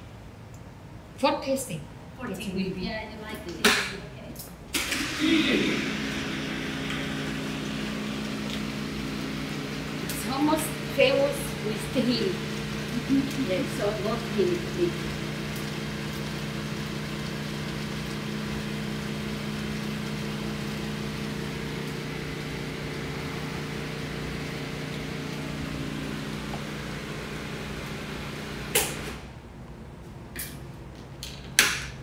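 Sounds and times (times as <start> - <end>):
electric blender running: 4.8 - 29.2.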